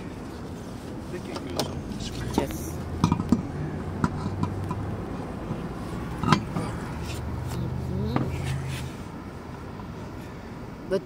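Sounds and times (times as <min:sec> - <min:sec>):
lug wrench clinking on metal: 0:06.1 - 0:07.2.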